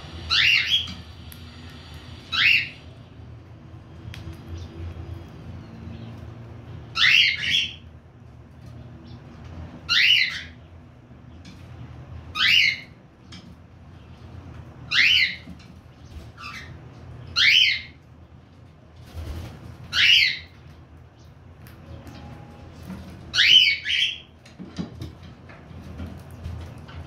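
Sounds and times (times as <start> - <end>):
cockatiel calling: 0.3 - 1.0, 2.3 - 2.8, 6.9 - 7.8, 9.9 - 10.6, 12.3 - 13.0, 14.9 - 15.4, 16.4 - 18.0, 19.9 - 20.5, 23.3 - 24.2.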